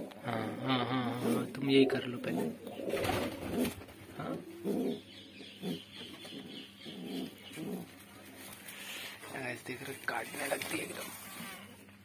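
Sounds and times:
pigeon cooing: 0.0 - 8.0.

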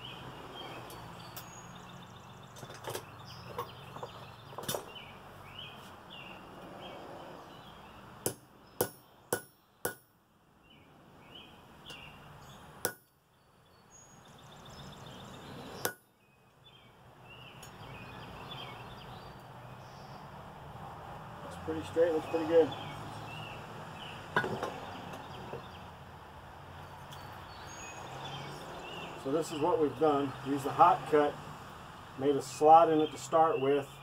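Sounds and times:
hammer striking steel on anvil: 8.2 - 10.1, 12.8 - 13.1, 15.8 - 16.1.

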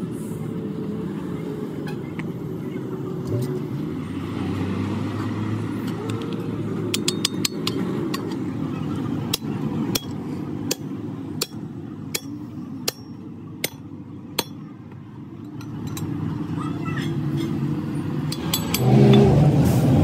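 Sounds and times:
light metallic clinks: 15.4 - 16.2, 18.3 - 19.3.

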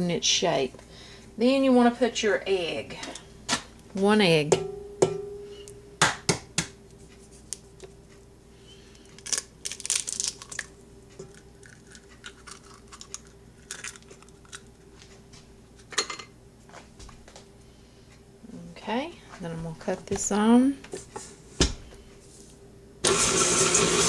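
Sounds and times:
faint steady hum: 0.0 - 23.0
egg shell cracking: 9.0 - 14.8.

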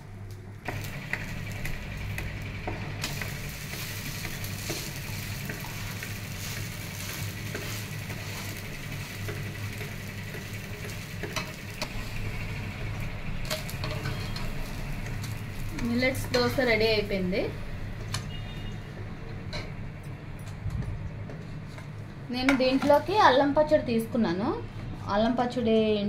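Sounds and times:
low hum: 0.0 - 18.1
dosa sizzling on a hot pan: 0.7 - 19.2
metal spatula scraping a pan: 3.7 - 11.6, 13.4 - 14.6.

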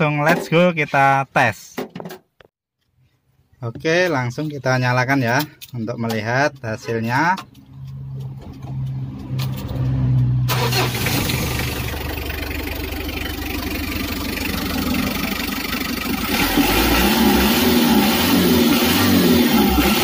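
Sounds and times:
diesel engine running: 8.2 - 20.0
starter motor cranking: 10.5 - 12.0.

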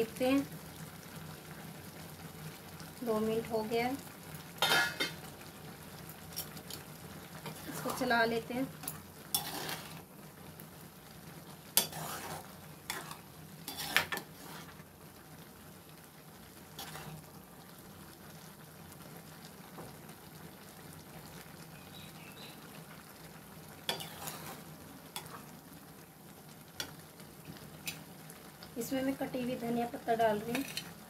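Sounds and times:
low sizzle: 0.0 - 31.0
spatula scraping and knocking pan: 4.6 - 5.2, 9.3 - 10.0, 11.8 - 14.8, 16.8 - 17.2, 23.9 - 24.6, 30.5 - 30.9.

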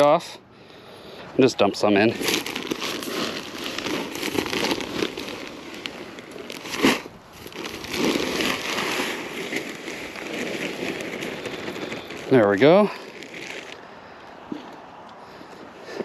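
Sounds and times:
manure pouring and sliding: 1.8 - 13.9
plastic bag crinkling: 2.0 - 13.8.

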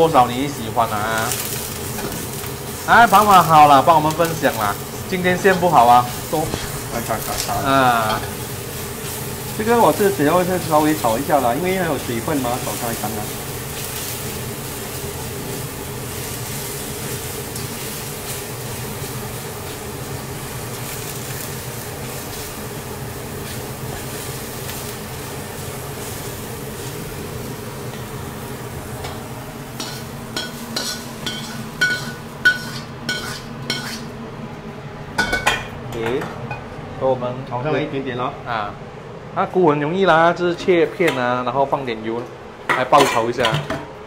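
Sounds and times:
mushrooms sizzling in a wok: 0.0 - 36.0
metal utensil scraping wok: 29.8 - 34.1.

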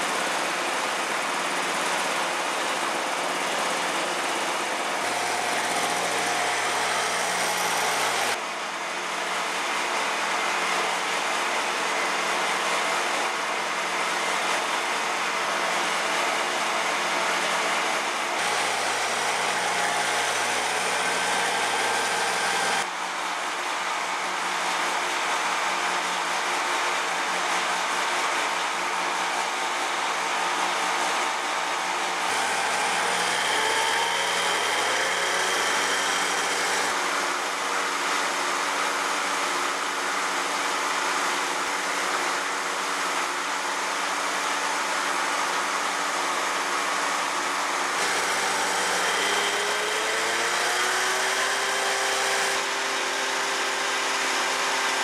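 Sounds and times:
woodworking machine motor humming: 3.0 - 8.4, 18.4 - 22.9, 32.2 - 37.3, 48.0 - 55.0.

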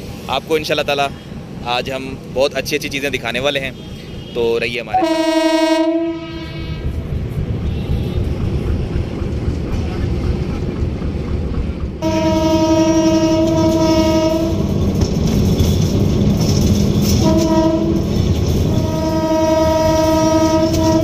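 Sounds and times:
locomotive horn blasts: 4.9 - 7.0, 12.0 - 14.7, 17.1 - 18.2, 18.8 - 21.0
train running rumble: 4.9 - 21.0.

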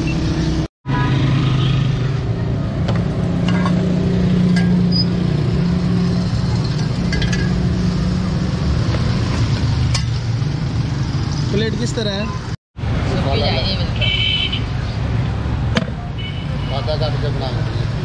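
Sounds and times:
motor traffic engine drone: 0.0 - 13.9.

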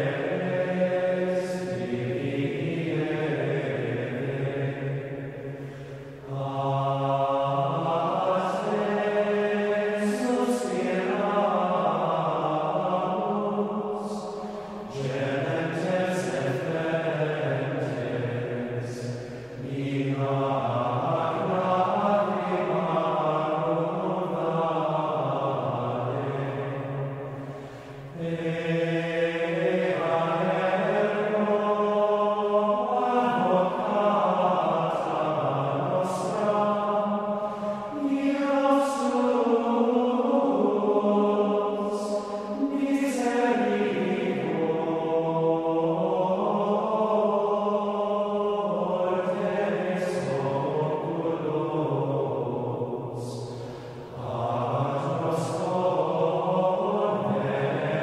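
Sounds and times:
choral chanting: 0.0 - 58.0.

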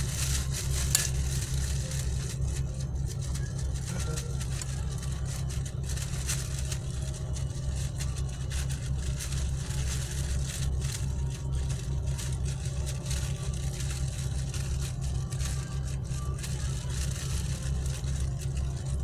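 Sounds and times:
low motor rumble: 0.0 - 19.0.

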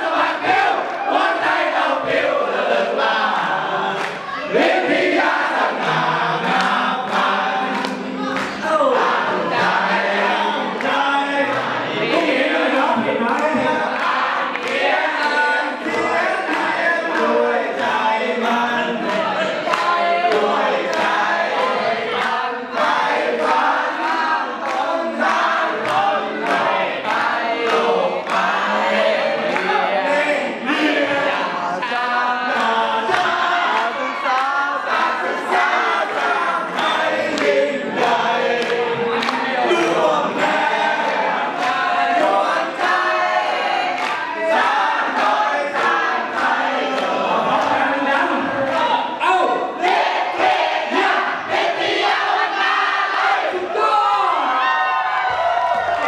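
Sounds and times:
crowd singing along: 0.0 - 56.0
hand claps: 4.0 - 4.3, 6.4 - 8.6, 13.2 - 18.0, 19.0 - 28.6, 32.6 - 40.0, 41.5 - 43.0, 43.8 - 47.8.

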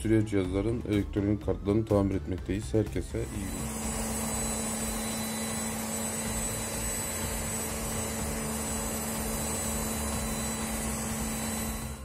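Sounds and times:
washing machine whirring and humming: 3.1 - 12.0.

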